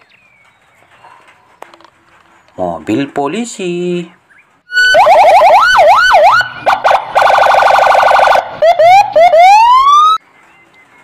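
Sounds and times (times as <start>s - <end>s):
police siren: 4.7s - 10.2s.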